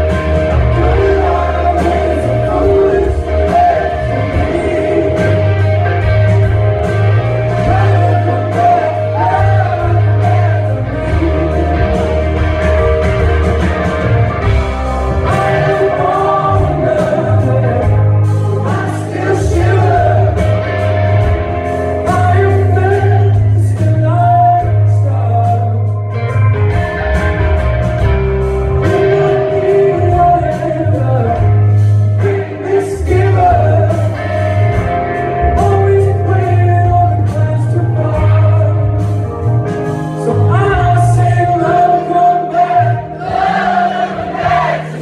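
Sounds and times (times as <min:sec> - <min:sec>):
live rock band with singing: 0:00.0 - 0:45.0.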